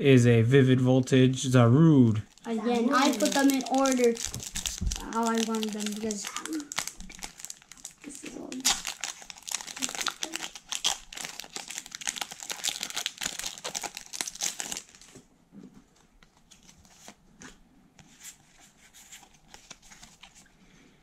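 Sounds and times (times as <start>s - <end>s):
foil wrapper crinkling and tearing: 2.2s - 15.2s.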